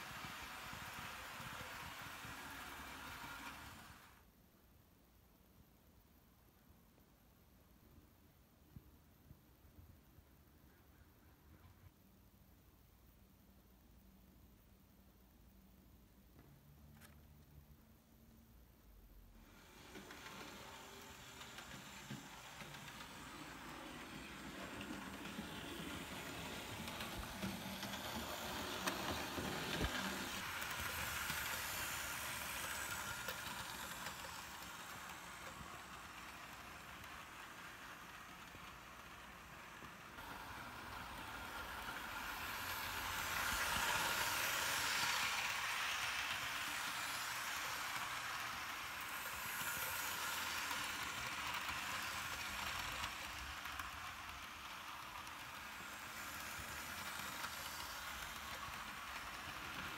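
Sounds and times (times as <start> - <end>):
model train motor whirring: 0.0 - 4.2, 19.4 - 59.9.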